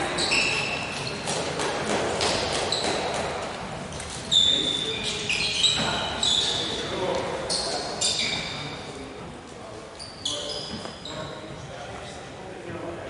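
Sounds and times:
gym hubbub: 0:00.0 - 0:13.0
shoes squeaking on hardwood: 0:02.2 - 0:08.9, 0:10.0 - 0:11.7.

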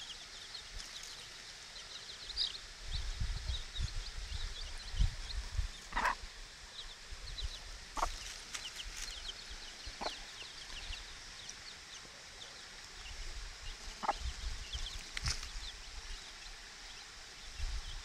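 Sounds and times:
chicks peeping: 0:00.0 - 0:18.0
hen clucking: 0:05.8 - 0:06.3, 0:07.9 - 0:08.3, 0:09.8 - 0:10.8, 0:14.0 - 0:14.3.

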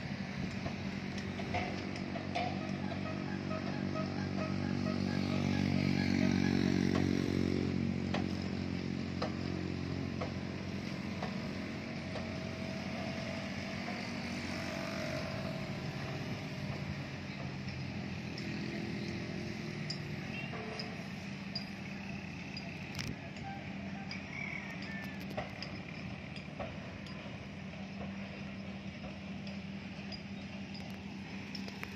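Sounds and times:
traffic noise: 0:00.0 - 0:31.9
vehicle engine humming: 0:00.0 - 0:31.9.

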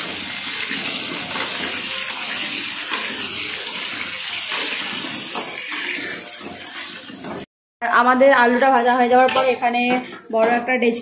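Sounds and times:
potatoes sizzling in oil: 0:00.0 - 0:07.4
metal spatula scraping pan: 0:00.8 - 0:07.4, 0:08.4 - 0:11.0.

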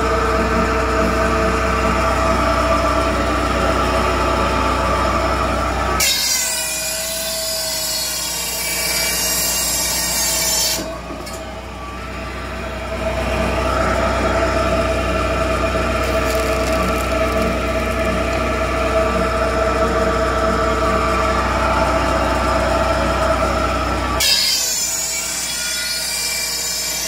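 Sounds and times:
firewood processor running: 0:00.0 - 0:27.0
saw cutting through log: 0:00.1 - 0:27.0.

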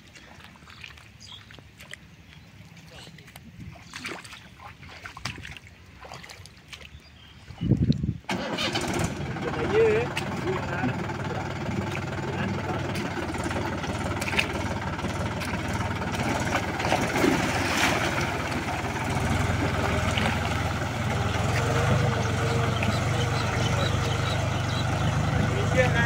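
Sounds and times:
tractor diesel engine under load: 0:08.3 - 0:26.0.

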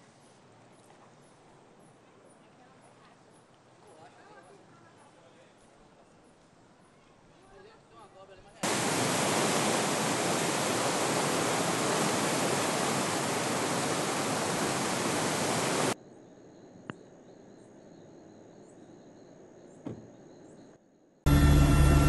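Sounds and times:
faint hiss with high tone: 0:08.6 - 0:16.0
river rushing over rapids: 0:08.6 - 0:16.0.

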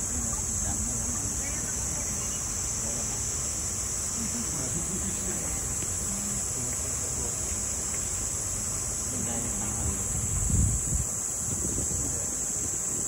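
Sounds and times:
cicadas buzzing: 0:00.0 - 0:13.0
wind rumble on microphone: 0:09.2 - 0:13.0.

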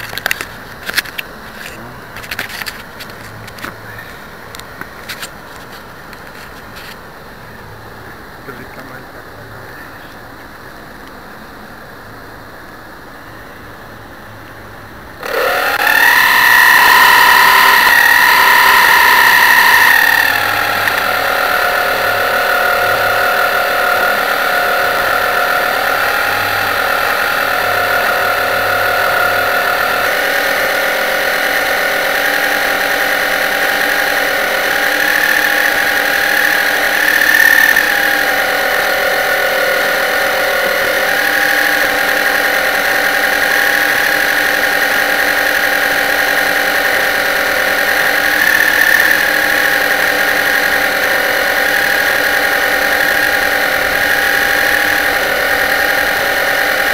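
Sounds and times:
model boat motor whine: 0:15.0 - 0:56.9.

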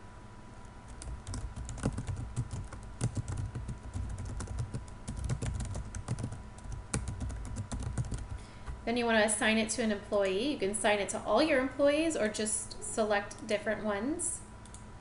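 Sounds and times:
typing on computer keyboard: 0:00.9 - 0:08.4.

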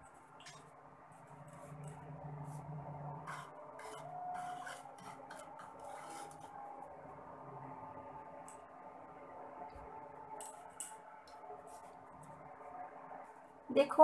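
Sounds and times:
spatula scraping salt in a wok: 0:02.4 - 0:06.6.

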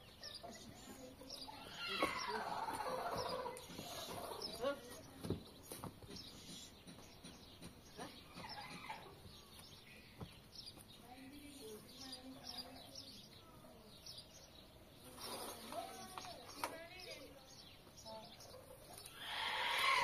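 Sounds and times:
chickens clucking: 0:00.0 - 0:09.4, 0:18.3 - 0:20.0.

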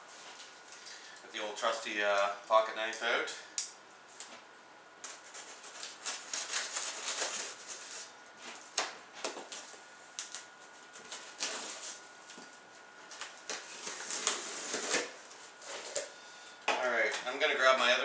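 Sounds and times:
knife scraping cardboard: 0:05.1 - 0:08.1, 0:13.5 - 0:16.1.

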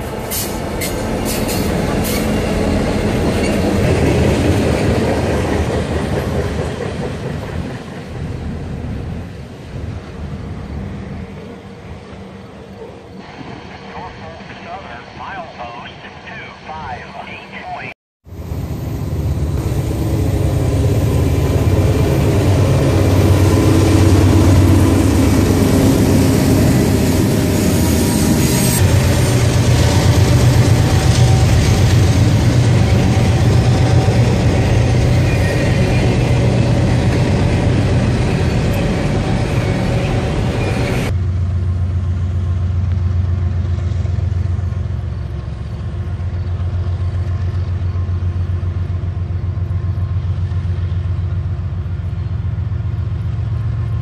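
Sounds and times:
train cars clattering on rails: 0:00.0 - 0:08.6
diesel locomotive engines: 0:00.0 - 0:54.0.

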